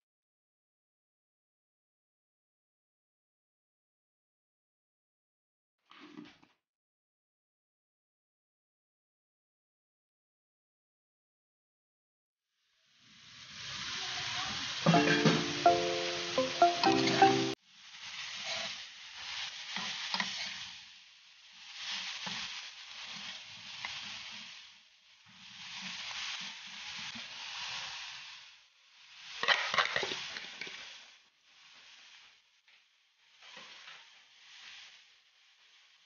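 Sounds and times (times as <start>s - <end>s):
vegetables sizzling in frying pan: 12.6s - 36.0s.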